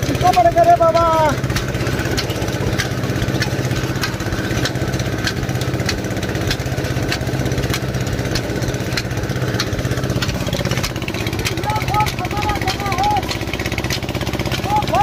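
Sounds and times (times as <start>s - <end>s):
sharp repeating tick: 0.0s - 15.0s
threshing machine engine running: 0.0s - 15.0s.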